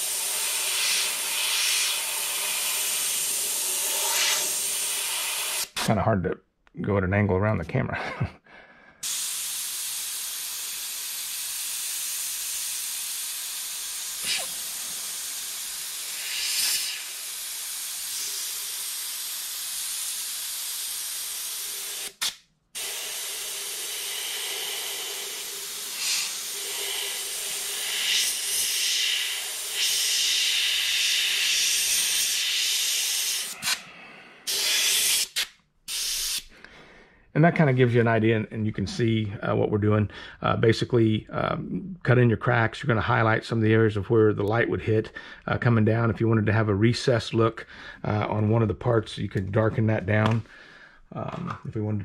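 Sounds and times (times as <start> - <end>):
airbrush hissing: 0.0 - 5.8, 9.0 - 36.5.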